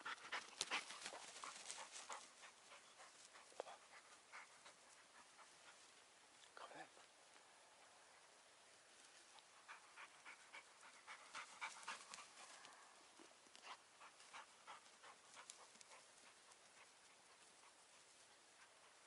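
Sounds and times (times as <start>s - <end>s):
dog panting: 0.0s - 6.0s, 9.2s - 12.8s, 13.5s - 19.0s.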